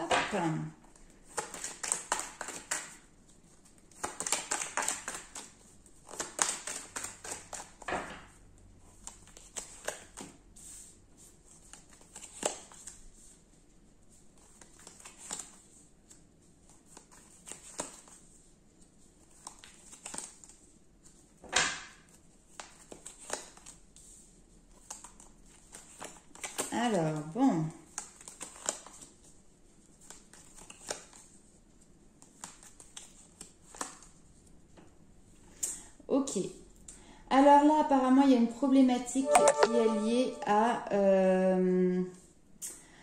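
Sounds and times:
cards shuffling and rustling: 0.8s - 7.9s, 8.8s - 13.5s, 14.1s - 21.3s, 22.1s - 27.2s, 27.9s - 31.6s, 32.2s - 34.2s.

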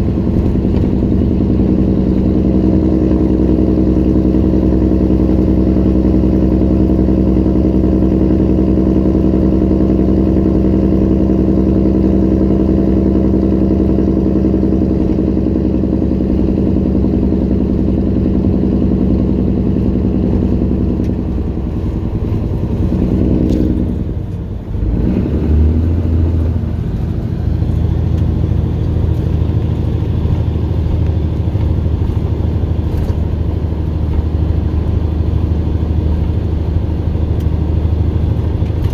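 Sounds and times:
diesel truck engine running: 0.0s - 38.9s.

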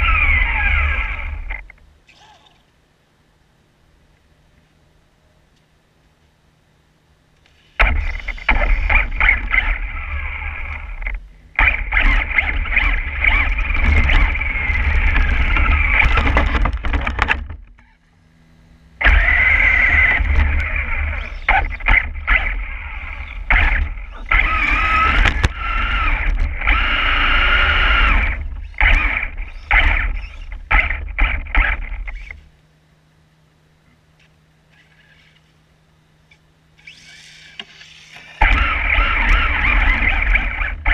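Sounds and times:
tires and chassis rumbling: 0.0s - 2.1s, 7.8s - 32.6s, 38.4s - 40.9s
rc truck motor whining: 0.0s - 2.5s, 7.4s - 32.5s, 34.7s - 35.6s, 36.3s - 40.9s.

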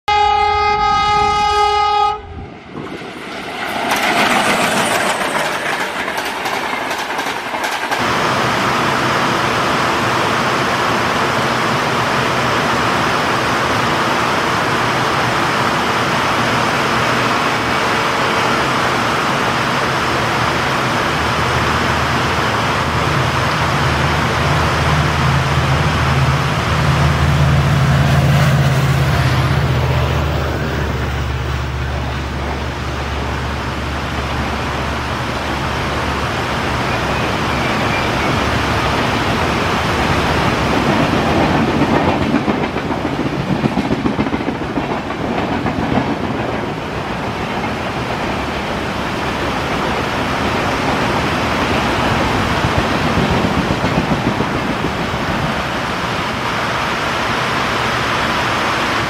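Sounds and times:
locomotive horn blast: 0.0s - 2.4s
diesel locomotive engine rumble: 0.1s - 59.0s.

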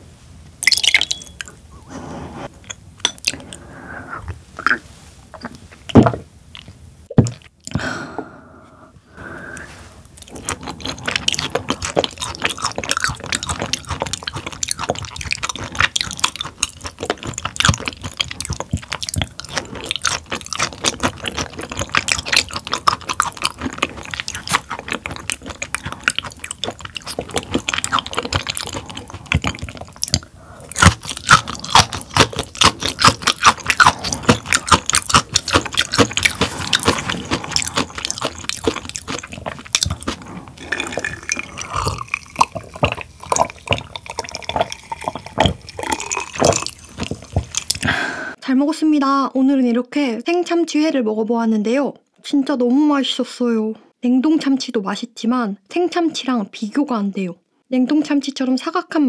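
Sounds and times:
chewing mouth clicks: 10.0s - 47.9s.

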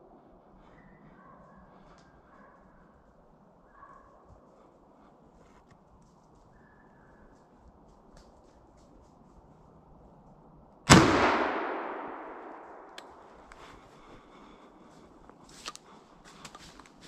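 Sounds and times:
faint clicks and rustles: 1.4s - 10.5s, 13.0s - 17.0s
shotgun shot echoing: 10.9s - 13.3s.

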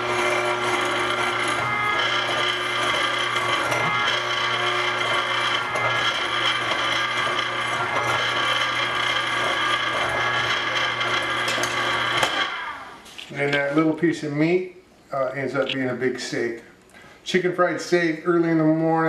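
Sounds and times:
meat grinder motor humming: 0.0s - 13.0s.

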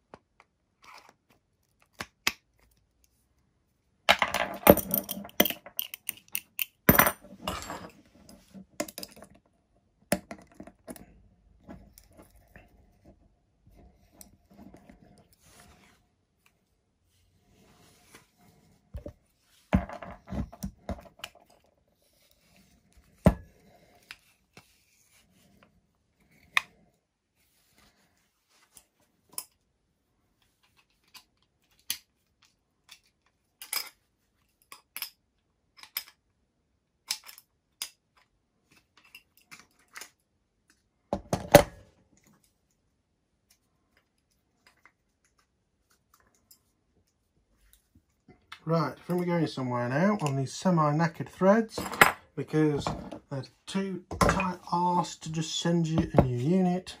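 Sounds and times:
metal tools clicking and knocking: 4.1s - 8.0s.

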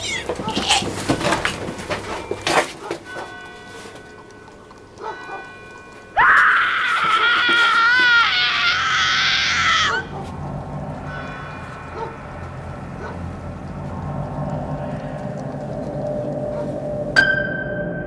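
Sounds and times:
high-pitched human scream: 6.2s - 10.1s
faint low drone: 10.1s - 18.0s.

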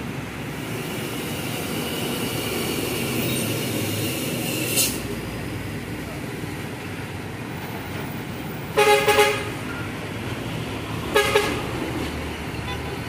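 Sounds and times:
passing traffic: 0.0s - 13.0s
vehicle horn honking: 8.8s - 9.6s, 11.1s - 11.6s, 12.6s - 13.0s.

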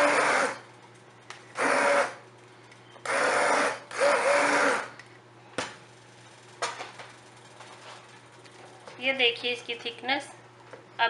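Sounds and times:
stick blender running: 0.0s - 0.7s, 1.4s - 2.2s, 3.0s - 5.1s.

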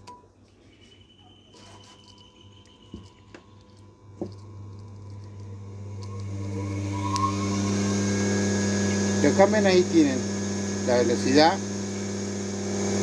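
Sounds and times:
washing machine motor whining: 1.5s - 13.0s
sharp clicks of wire leads: 1.6s - 7.3s.

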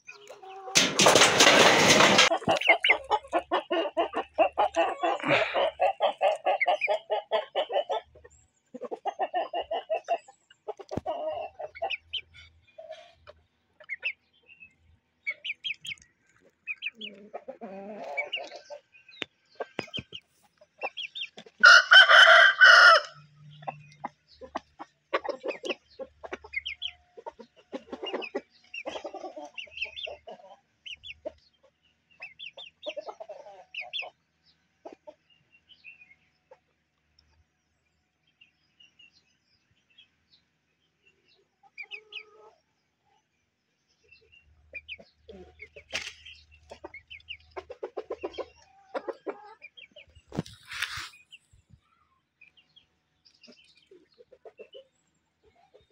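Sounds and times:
chickens clucking: 0.0s - 55.9s
rooster crowing: 21.6s - 23.2s.

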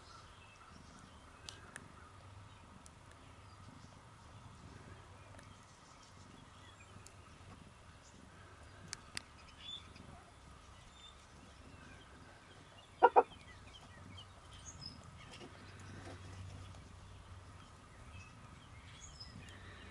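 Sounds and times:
loud animal calls: 13.0s - 13.3s.

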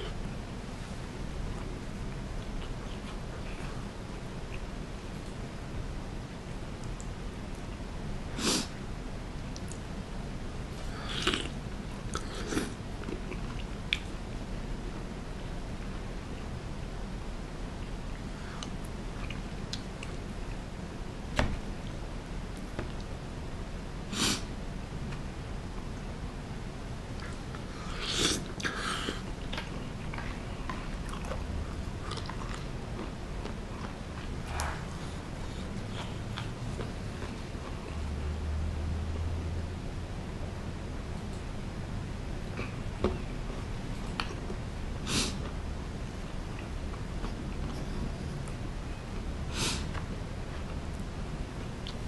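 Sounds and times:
steady low hum: 0.0s - 52.0s
chewing: 28.2s - 38.0s.

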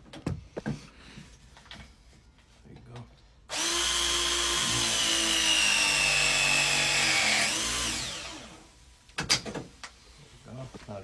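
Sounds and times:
pipe press tool motor whine: 3.5s - 8.7s.

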